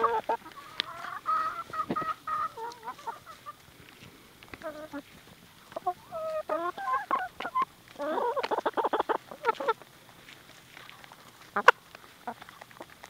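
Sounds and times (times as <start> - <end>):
chickens clucking: 0.0 - 13.0.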